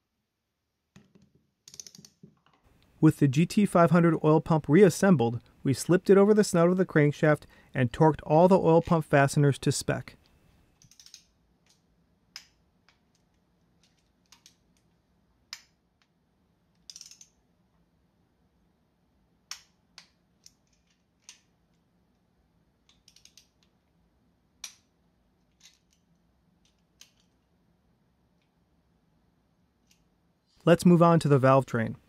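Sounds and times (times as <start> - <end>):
socket wrench clicking: 16.8 - 17.4, 22.9 - 23.7.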